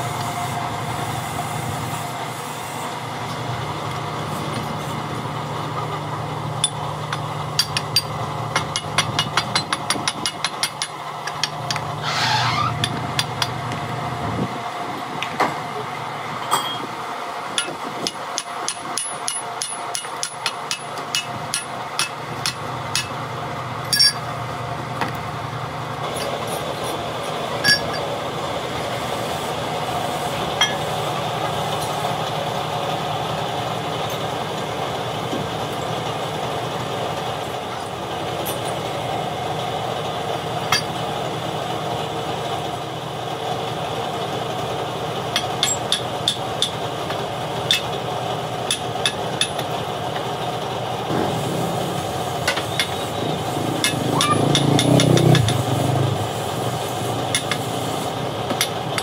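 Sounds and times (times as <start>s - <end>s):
hammer tapping on steel: 17.6s - 23.2s, 53.8s - 55.6s.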